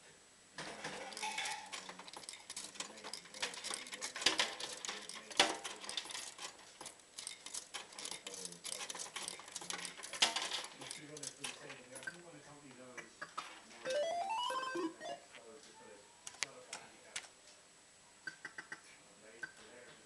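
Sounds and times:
coins clattering in fruit machine: 0.6s - 12.2s.

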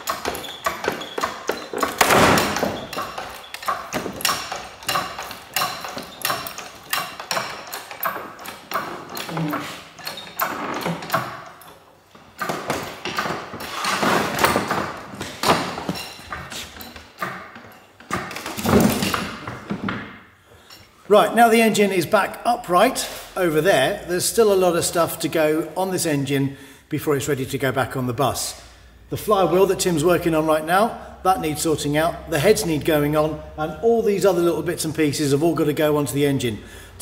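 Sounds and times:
metallic clanks and thuds: 0.0s - 20.2s.

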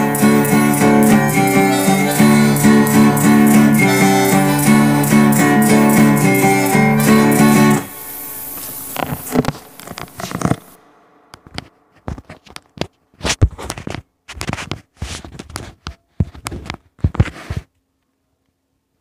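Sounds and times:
guitar ringing: 0.0s - 12.4s
faint hum: 0.0s - 13.2s
handling clicks knocks and scrapes: 11.6s - 17.8s.

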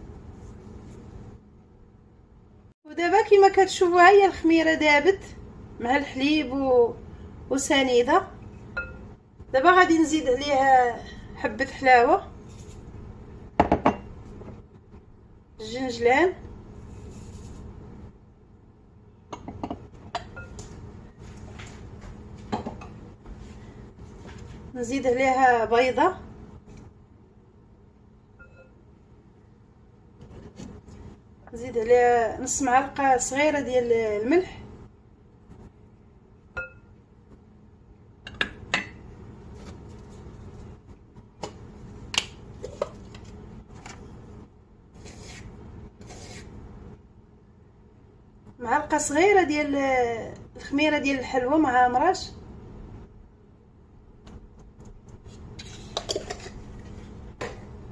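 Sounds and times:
can opening scraping rustle: 55.3s - 57.1s.

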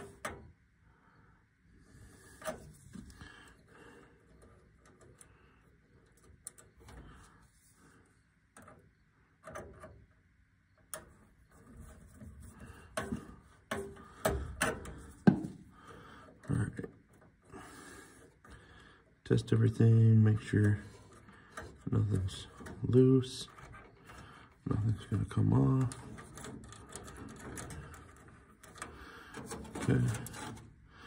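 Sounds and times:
wire handling clicks and rustles: 0.0s - 0.6s, 1.9s - 31.0s.

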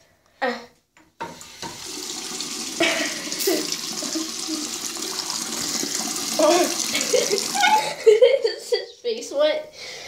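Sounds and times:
faucet water running into basin: 1.2s - 8.2s.

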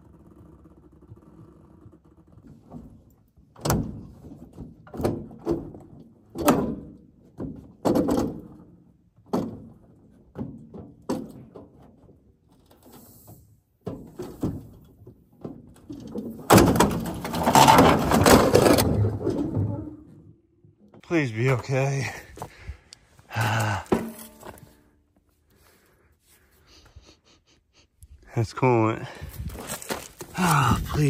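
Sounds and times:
truck scraping crash onto ramp: 16.3s - 20.3s
sharp metal clunks: 23.9s - 24.8s.

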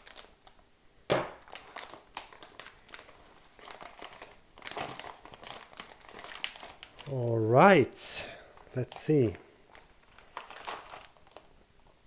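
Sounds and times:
plastic pouch crinkling and tearing: 0.0s - 0.6s, 1.4s - 7.1s, 9.6s - 11.6s.

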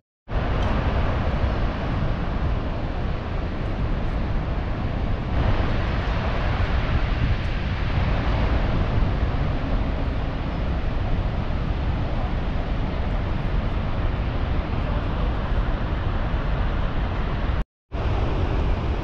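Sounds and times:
waterfall roaring: 0.4s - 19.0s.

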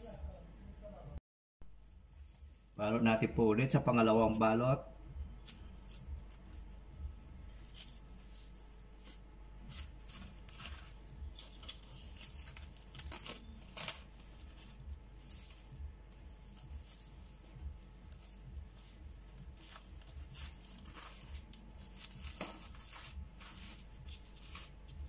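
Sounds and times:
cling wrap crinkling: 5.4s - 25.0s.

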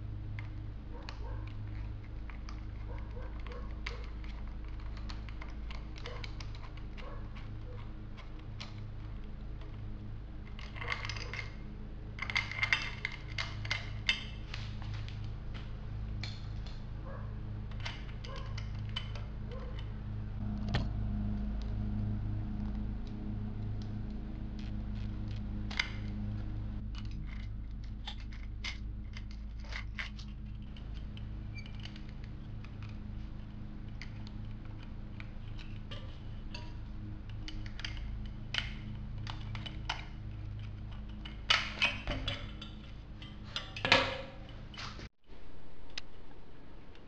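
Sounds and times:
steady low hum: 0.0s - 47.0s
small metal clicks and clatter: 0.1s - 45.1s.

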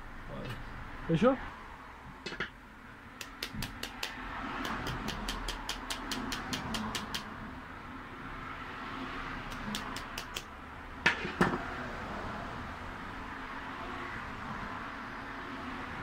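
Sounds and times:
sharp clicks from pliers: 3.2s - 7.3s, 9.5s - 10.5s.

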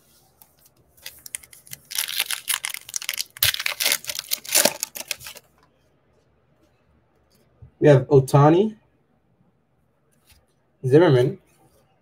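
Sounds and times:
foil wrapper tearing and crinkling: 1.0s - 5.4s.

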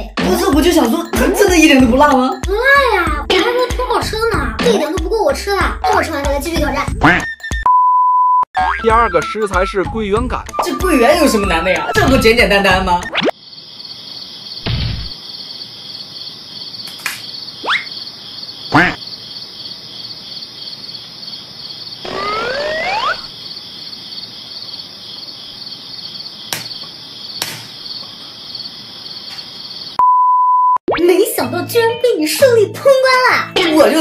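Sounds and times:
test-tone beep: 7.5s - 8.8s, 30.0s - 30.8s
crickets chirping: 12.0s - 30.0s
whistle-like glides: 22.1s - 23.3s.

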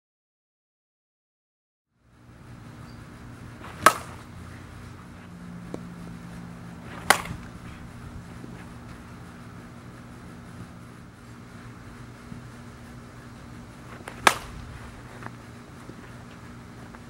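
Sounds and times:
low outdoor hum: 1.9s - 17.0s
bat hitting ball: 3.6s - 4.7s, 5.6s - 9.0s, 13.6s - 16.0s.

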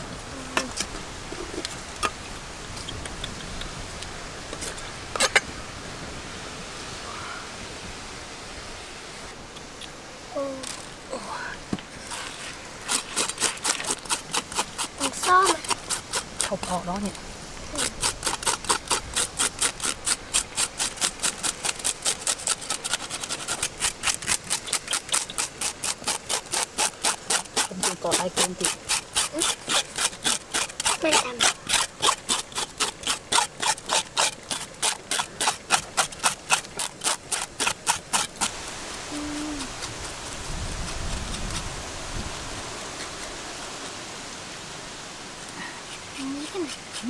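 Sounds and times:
steady hiss: 0.0s - 47.0s
fast scraping strokes: 12.0s - 17.1s, 17.7s - 44.0s, 45.4s - 47.0s.

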